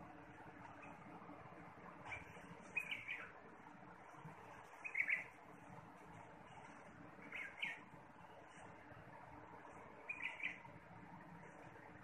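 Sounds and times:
steady background hiss: 0:00.0 - 0:12.0
bird chirping: 0:02.0 - 0:03.4, 0:04.7 - 0:05.4, 0:06.5 - 0:08.7, 0:09.7 - 0:10.8.

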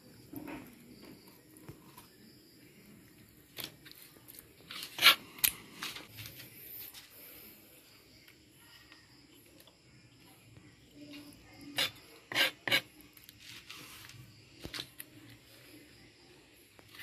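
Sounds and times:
knife scraping on cutting board: 0:04.7 - 0:05.2, 0:11.7 - 0:12.9.

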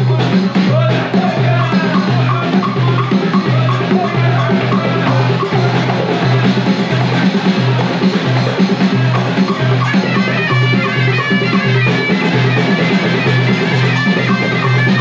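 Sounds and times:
deep drum beat: 0:00.0 - 0:15.0
frame-drum jingles: 0:00.0 - 0:15.0
voices chanting: 0:00.0 - 0:15.0.

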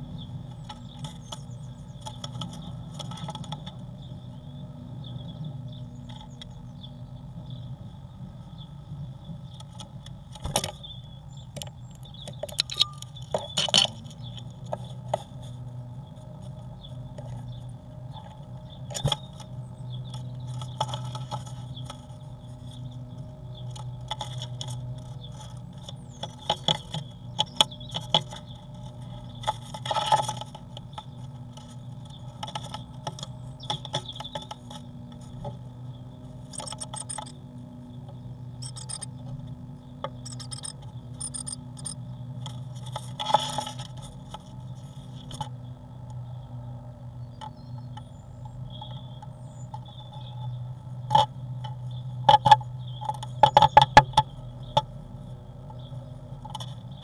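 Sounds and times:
low electrical hum: 0:00.0 - 0:57.0
bird claws scratching on wood: 0:23.6 - 0:35.5, 0:36.4 - 0:37.3, 0:40.2 - 0:45.5.

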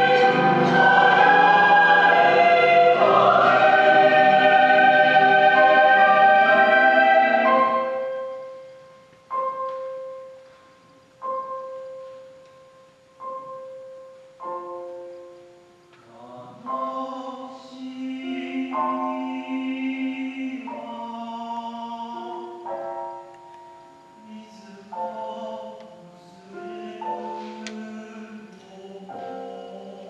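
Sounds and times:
choir singing: 0:00.0 - 0:08.2, 0:16.2 - 0:22.7.

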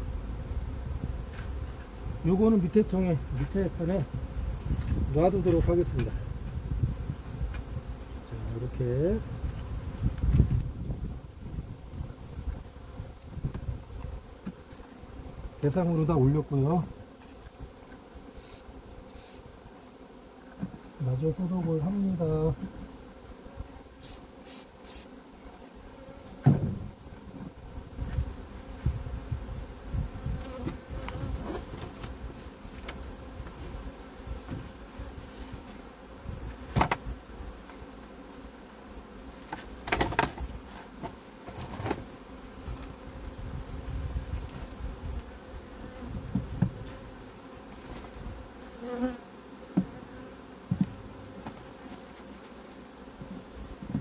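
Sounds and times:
honeybees buzzing: 0:00.0 - 0:54.0
wooden hive frames knocking: 0:04.2 - 0:06.6, 0:26.3 - 0:28.3, 0:36.4 - 0:37.2, 0:39.5 - 0:42.1, 0:46.2 - 0:47.0, 0:49.7 - 0:51.8.

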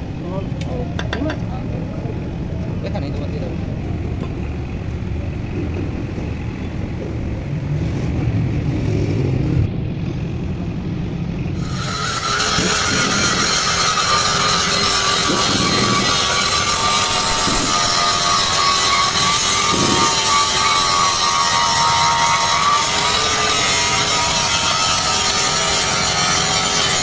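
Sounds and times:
power tool whining on metal: 0:11.6 - 0:27.0.

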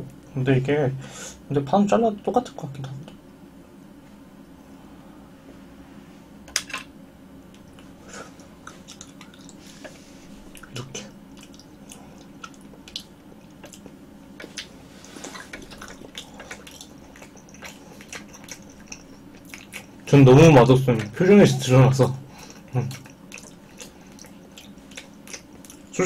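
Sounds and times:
wet clicks and squishes: 0:10.5 - 0:20.2, 0:20.9 - 0:21.2.

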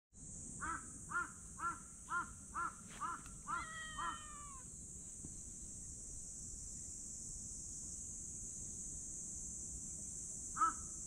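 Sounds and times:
steady high hiss: 0:00.2 - 0:11.0
crow cawing: 0:00.6 - 0:04.6, 0:10.6 - 0:10.8.

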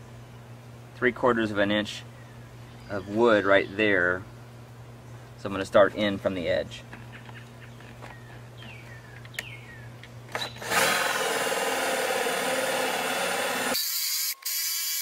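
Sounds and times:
drill boring into wood: 0:10.4 - 0:15.0.

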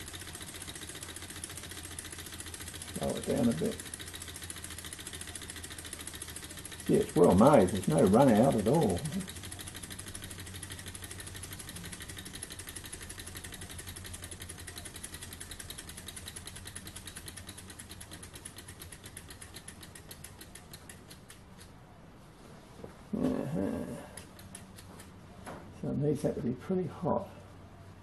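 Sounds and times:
stirling engine ticking: 0:00.0 - 0:21.4.

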